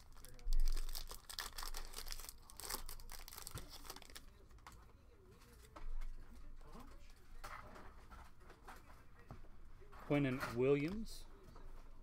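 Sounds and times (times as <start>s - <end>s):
foil wrapper tearing and crinkling: 0.0s - 4.2s.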